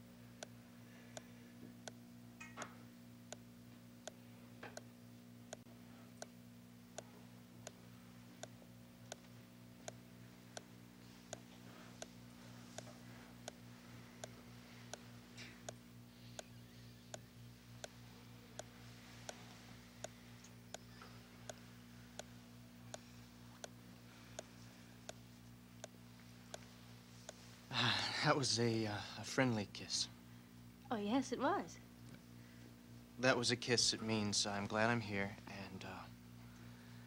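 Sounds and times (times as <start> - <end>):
low electrical hum: 0.0 - 37.0
faint ticking: 0.4 - 2.7, 3.3 - 4.9, 5.5 - 27.5.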